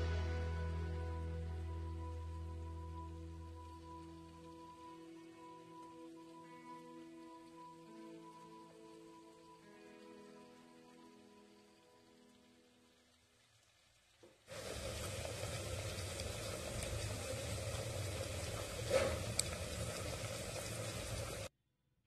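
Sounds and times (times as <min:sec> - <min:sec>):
curry sizzling and bubbling: 0:00.0 - 0:21.5.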